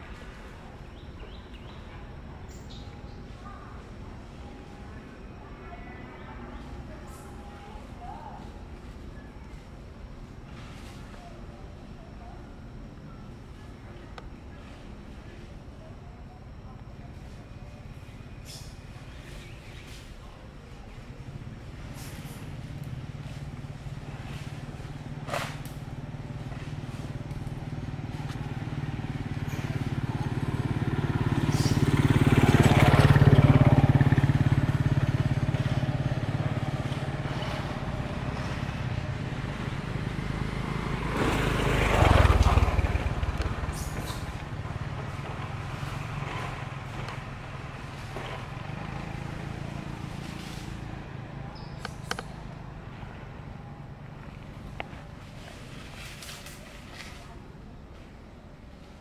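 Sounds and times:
vehicle engine passing by: 21.8 - 57.1.

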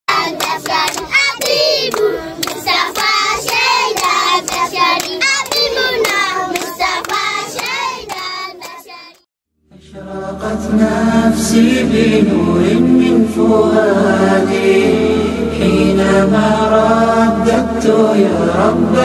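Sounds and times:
children singing: 0.1 - 9.2
children clapping hands: 0.1 - 9.3.

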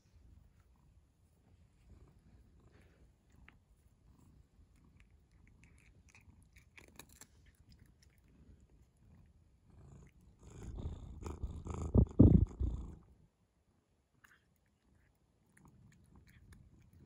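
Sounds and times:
cat crunching treats: 4.7 - 11.7, 14.2 - 17.0
low rumbling: 10.5 - 13.0.

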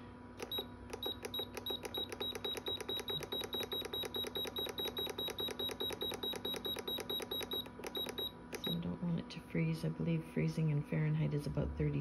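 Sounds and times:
fridge control panel beeping: 0.4 - 8.9.

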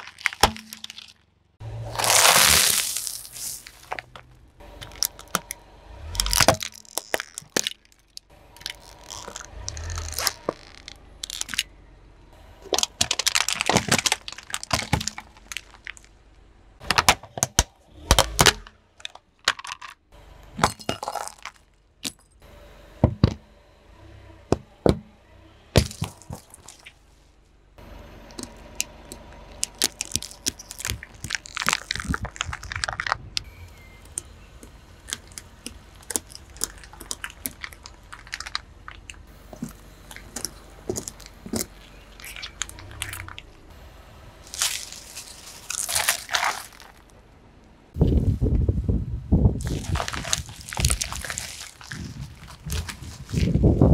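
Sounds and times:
toy car cracking and crunching: 0.0 - 1.3, 1.9 - 11.7, 12.6 - 16.2, 16.9 - 22.3, 25.8 - 27.0, 29.5 - 43.5, 44.5 - 47.2, 49.6 - 53.9
tin being flattened: 2.0 - 4.1, 29.6 - 33.2, 49.6 - 53.6
plastic cups bursting: 12.7 - 16.0.

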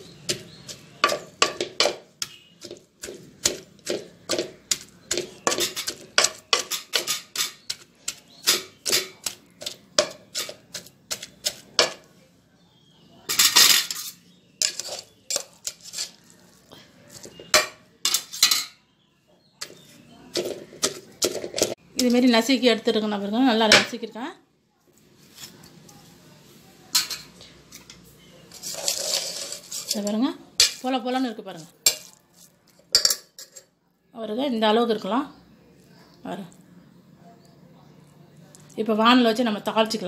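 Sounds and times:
wooden masher pounding in metal pot: 0.0 - 12.1, 19.6 - 22.2.

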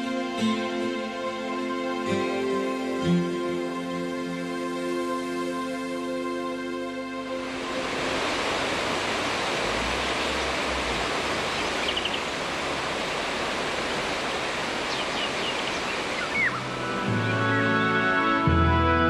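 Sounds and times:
water rushing over a weir: 7.2 - 17.5
high bird chirps: 11.6 - 12.3, 14.9 - 17.7.

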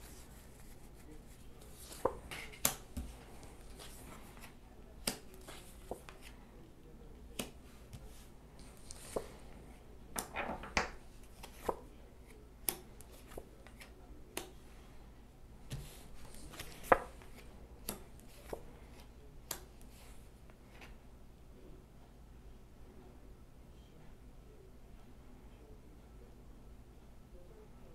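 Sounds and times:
cards tapping on wooden table: 10.2 - 11.0.

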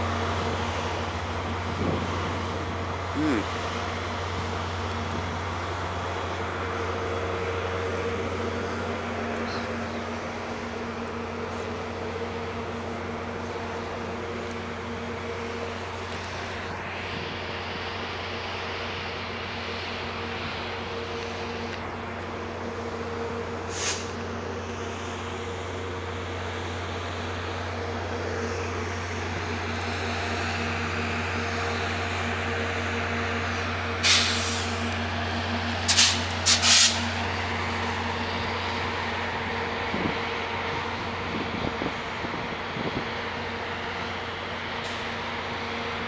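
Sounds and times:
diesel locomotive droning: 0.0 - 46.0
air brake hisses: 23.7 - 24.2, 34.0 - 34.9, 35.9 - 37.1.

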